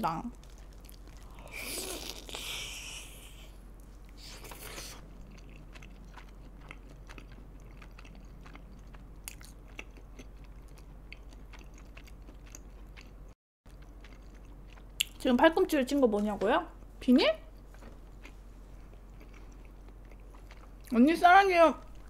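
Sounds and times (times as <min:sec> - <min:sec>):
chewing with wet mouth clicks: 0:05.0 - 0:15.2, 0:18.2 - 0:21.0.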